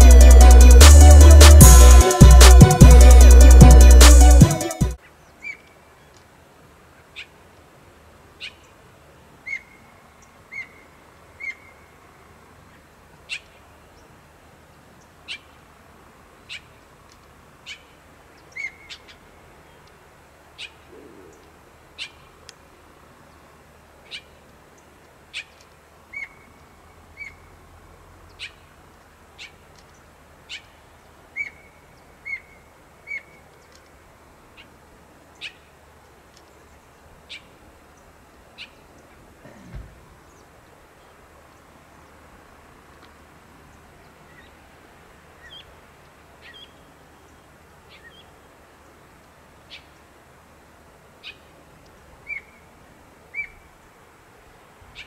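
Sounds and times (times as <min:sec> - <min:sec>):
faint background hiss: 0:00.0 - 0:55.0
bird chip calls: 0:05.0 - 0:06.2, 0:09.4 - 0:11.8, 0:17.6 - 0:19.9, 0:20.6 - 0:22.4, 0:24.0 - 0:27.5, 0:28.3 - 0:28.6, 0:29.4 - 0:33.9, 0:45.4 - 0:45.7, 0:52.2 - 0:52.6, 0:53.3 - 0:53.7.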